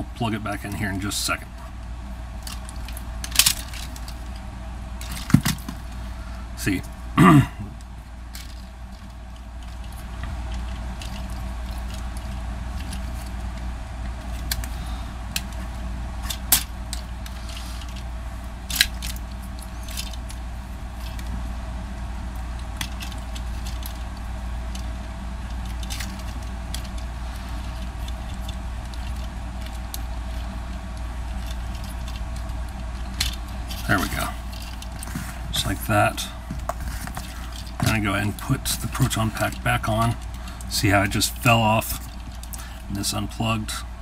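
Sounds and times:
low background hum: 0.0 - 44.0
plastic toy parts clicking: 2.4 - 4.2, 18.7 - 20.4, 22.8 - 24.0, 25.5 - 27.0, 31.4 - 35.0.

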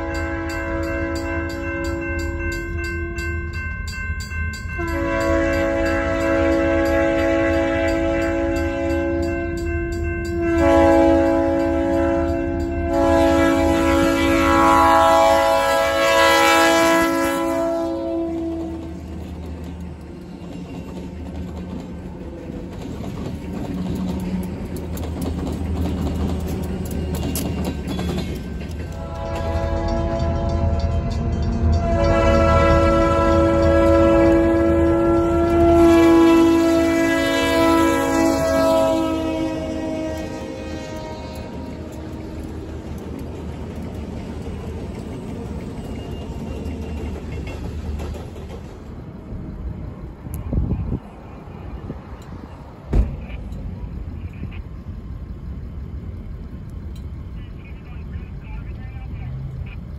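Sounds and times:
train horn: 0.0 - 3.4, 4.7 - 19.2, 28.9 - 42.7
diesel locomotive engines droning: 0.0 - 59.9
train wheels clicking on rails: 17.5 - 37.0, 37.6 - 59.9
low thump: 52.9 - 53.3.

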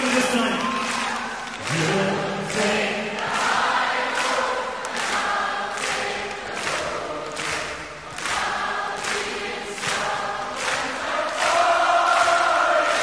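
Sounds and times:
choir singing with steady pulse: 1.1 - 13.0.

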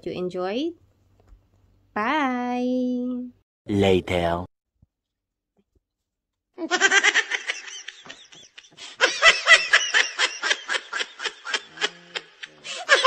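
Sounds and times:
woman laughing: 6.6 - 13.0.

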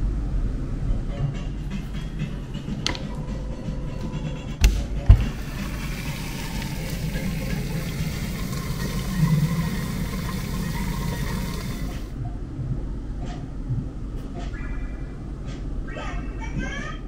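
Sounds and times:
steam hissing: 5.2 - 12.1
low hum: 5.2 - 13.1.

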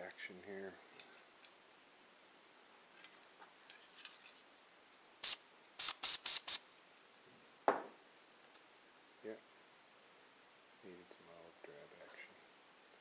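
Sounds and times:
spray paint can hissing: 5.2 - 6.6.

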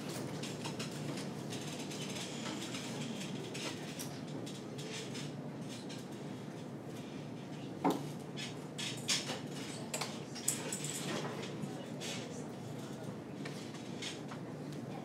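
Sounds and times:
small knocks clicks and rustles: 0.1 - 6.4.

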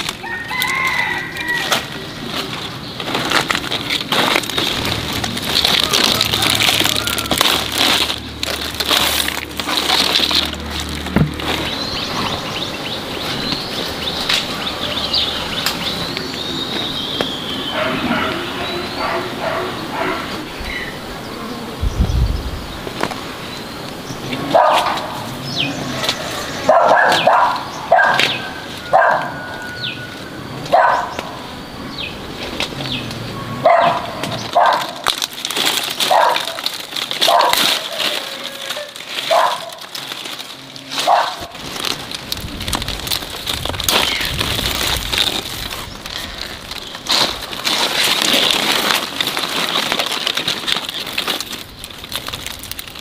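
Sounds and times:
dog barking: 17.7 - 20.4, 24.5 - 25.2, 26.7 - 29.4, 30.7 - 31.2, 33.6 - 35.0, 36.1 - 36.6, 37.2 - 37.7, 39.3 - 39.8, 41.0 - 41.5.

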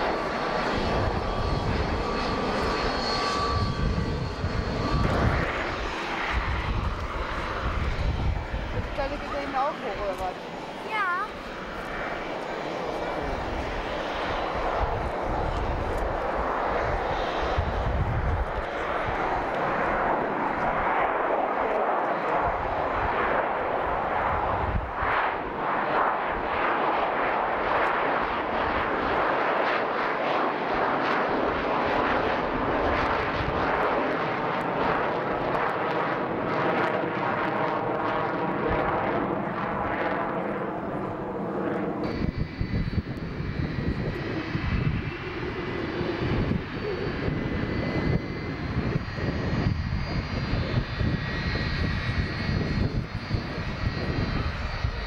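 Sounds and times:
jet roar climbing overhead: 0.0 - 55.0
turbofan engines whining on ground: 0.0 - 55.0.

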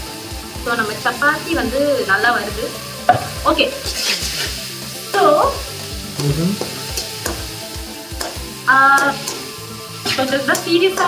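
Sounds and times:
onions sizzling in oil: 0.0 - 11.0
spoon scraping a pan: 3.8 - 4.6.

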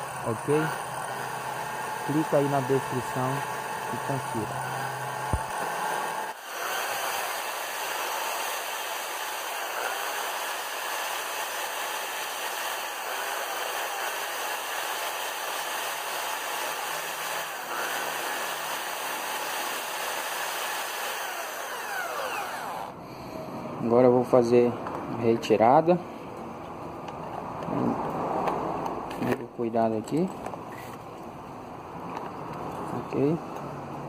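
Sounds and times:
electric drill running: 0.0 - 23.0
valve grinding against seat: 0.0 - 23.0.

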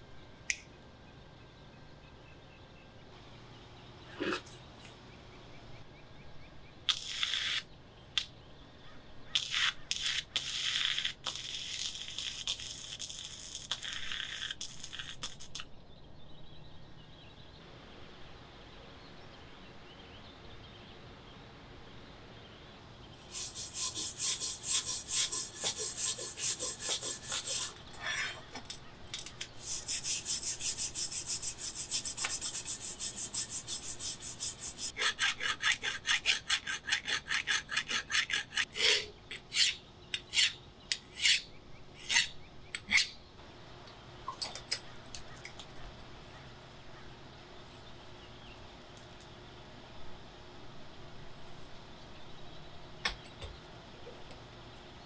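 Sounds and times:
rasping strokes sharpening a machete: 23.2 - 28.4, 29.6 - 43.1.

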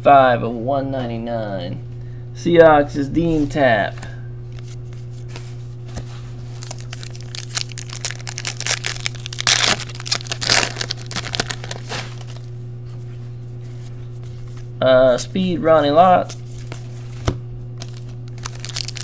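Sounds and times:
foil wrapper crinkling and tearing: 6.5 - 12.5, 17.8 - 19.0.

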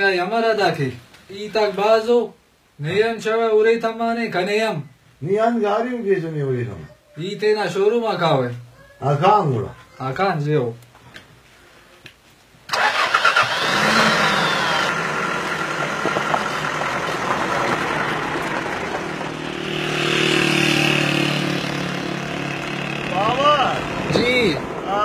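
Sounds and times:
car engine revving: 12.7 - 24.6.

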